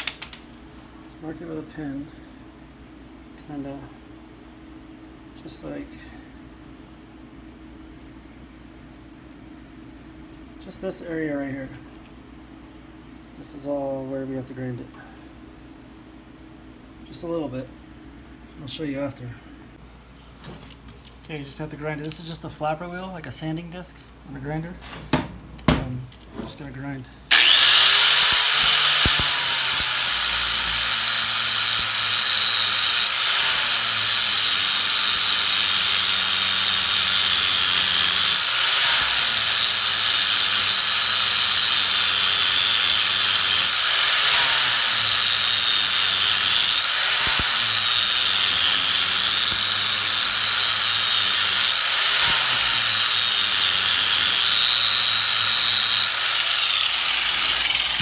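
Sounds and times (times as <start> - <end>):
grinder grinding steel: 27.3 - 58.0.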